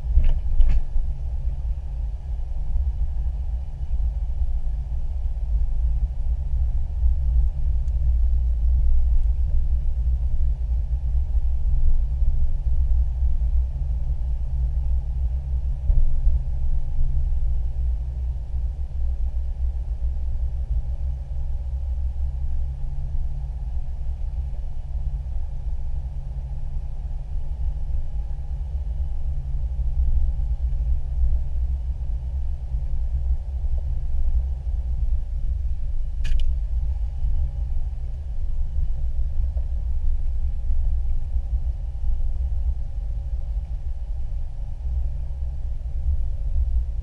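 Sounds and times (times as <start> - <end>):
vehicle engine and tyre rumble: 0.0 - 47.0
sharp click: 36.2 - 36.6.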